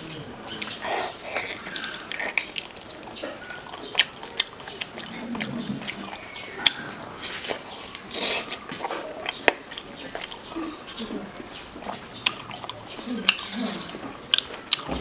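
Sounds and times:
wet chewing and lip-smacking: 0.6s - 15.0s.

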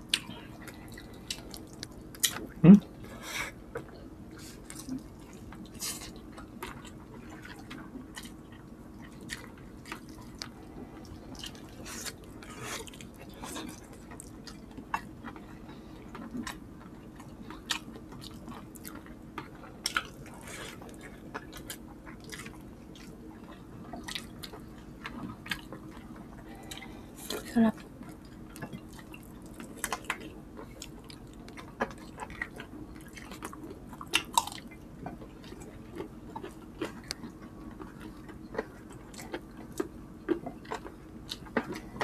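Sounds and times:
faint steady hum: 0.0s - 42.0s
people chewing with mouth smacks: 0.0s - 42.0s.

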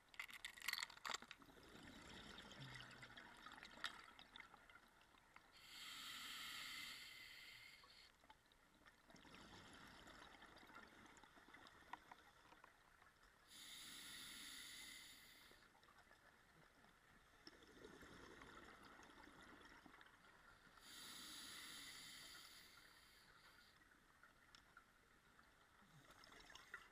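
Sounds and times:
regulator hiss: 20.9s - 23.6s.

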